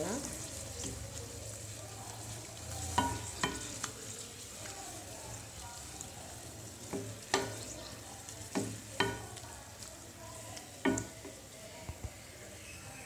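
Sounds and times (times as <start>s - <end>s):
wooden spatula scraping a pan: 0.0s - 9.5s
gravy simmering and sizzling: 0.0s - 13.0s.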